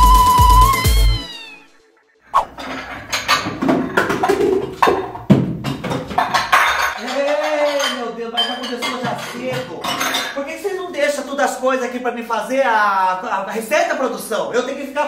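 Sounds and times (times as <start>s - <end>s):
pots and pans clattering: 2.5s - 10.5s.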